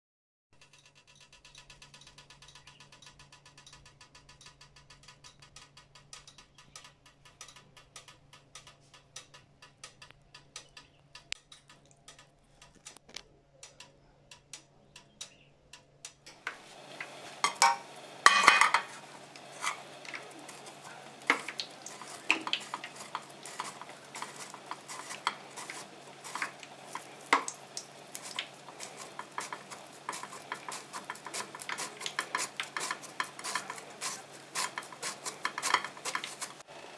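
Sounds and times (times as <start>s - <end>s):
fast faint ticking: 16.3s - 36.7s
plantain rasping on grater: 16.5s - 36.7s.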